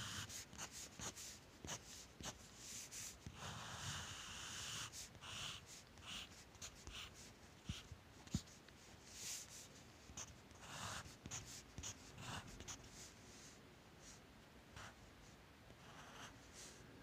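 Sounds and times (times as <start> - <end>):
pencil scratching on paper: 0.0 - 13.1.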